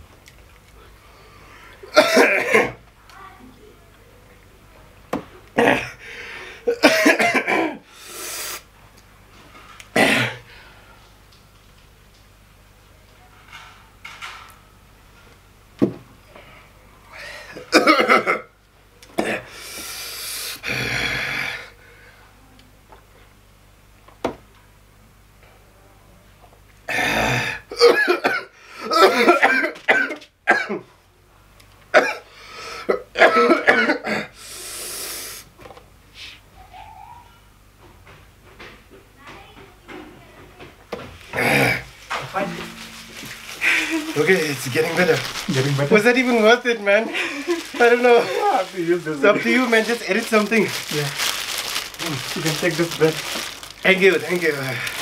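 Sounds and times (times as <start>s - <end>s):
man coughing hard: 1.9s - 2.8s, 5.6s - 6.0s, 6.6s - 7.8s, 10.0s - 10.5s, 17.6s - 18.5s, 26.9s - 30.8s, 31.9s - 34.4s, 41.3s - 41.9s
hissing breath out: 7.9s - 8.7s, 34.4s - 35.5s
long breathy hiss: 7.9s - 8.7s, 19.5s - 22.3s, 34.4s - 35.5s.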